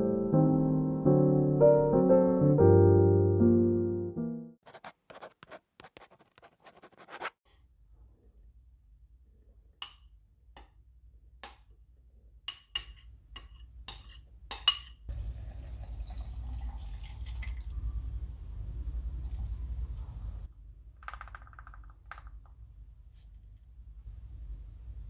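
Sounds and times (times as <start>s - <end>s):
light scratching: 4.6s - 7.4s
liquid pouring into jug: 15.1s - 17.8s.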